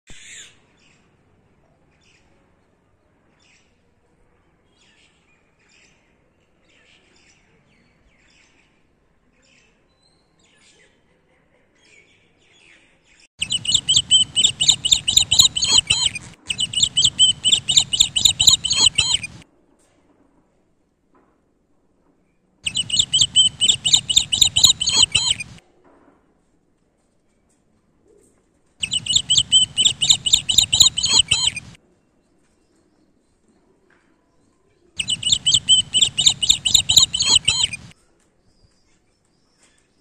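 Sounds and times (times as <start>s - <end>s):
birds chirping: 13.4s - 19.4s, 22.6s - 25.6s, 28.8s - 31.8s, 35.0s - 37.9s.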